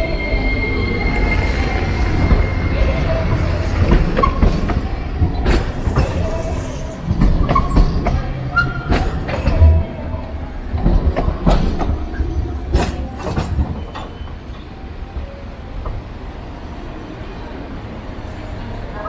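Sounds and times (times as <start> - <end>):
tram running rumble: 0.0 - 19.0
tram wheels knocking over rail joints: 3.2 - 14.3.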